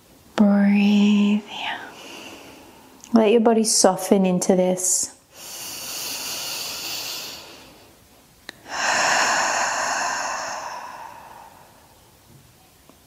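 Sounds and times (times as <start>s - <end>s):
woman breathing deeply: 1.6s - 3.0s, 5.3s - 12.1s.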